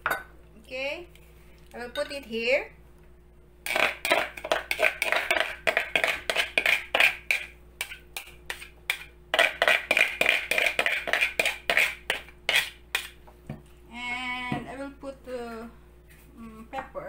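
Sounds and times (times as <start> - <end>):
utensil scraping against bowl: 3.7 - 13.2.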